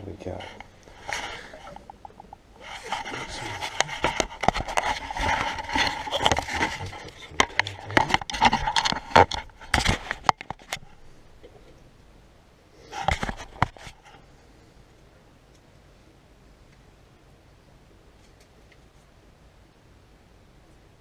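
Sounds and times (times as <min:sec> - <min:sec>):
scraping and rustling: 0:00.2 - 0:11.8, 0:12.8 - 0:14.3
sharp knocks and clicks: 0:07.4 - 0:11.6.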